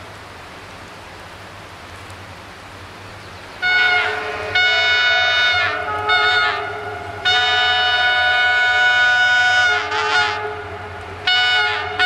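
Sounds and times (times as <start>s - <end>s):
locomotive horn blasts: 3.6s - 12.0s.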